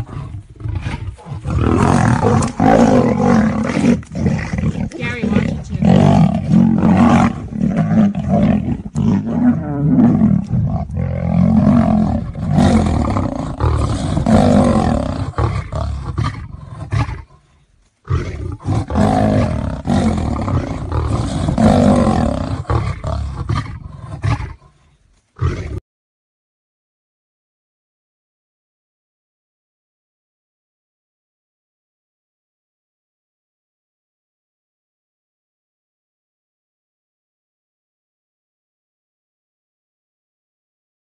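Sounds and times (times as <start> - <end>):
big cats roaring: 0.0 - 17.4, 18.1 - 24.8, 25.4 - 25.8.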